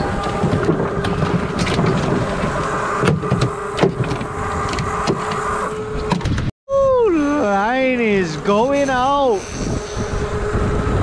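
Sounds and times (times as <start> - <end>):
outboard motors humming: 0.0 - 11.0
wind and water rushing: 0.0 - 11.0.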